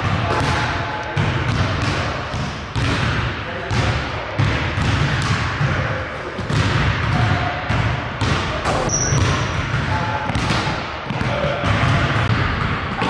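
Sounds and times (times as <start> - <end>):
sneaker squeak: 8.7 - 9.6.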